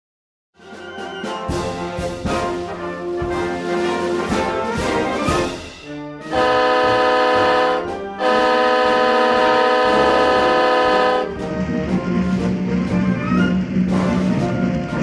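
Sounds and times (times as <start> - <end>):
orchestral music: 6.0 - 12.3
locomotive air horn blasts: 6.3 - 11.4.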